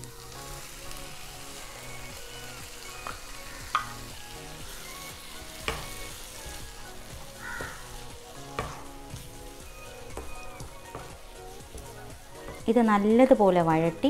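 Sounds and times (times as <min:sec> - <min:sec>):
food sizzling in a frying pan: 0:00.0 - 0:14.0
wooden spatula knocking: 0:05.6 - 0:06.0, 0:07.4 - 0:09.0, 0:10.0 - 0:12.8.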